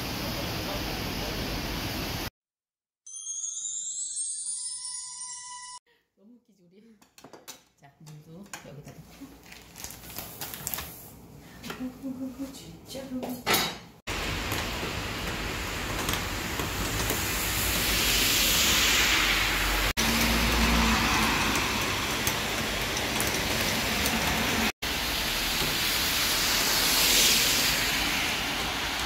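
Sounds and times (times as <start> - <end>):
rain falling: 14.1 - 29.0
tyres hissing on wet road: 14.1 - 29.0.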